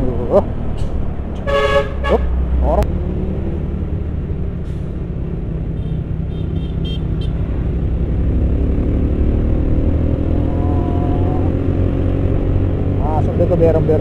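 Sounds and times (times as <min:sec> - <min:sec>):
road noise: 0:00.0 - 0:14.0.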